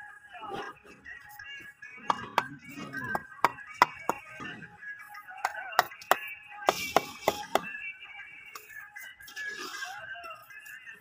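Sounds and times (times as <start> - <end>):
background music: 0.0 - 11.0
trowel tapping bricks: 2.0 - 4.5, 5.4 - 7.8
trowel scraping: 9.2 - 10.0.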